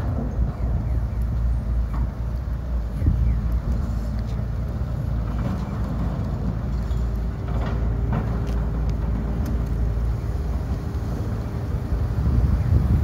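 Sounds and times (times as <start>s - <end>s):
diesel engine rumble: 0.0s - 13.0s.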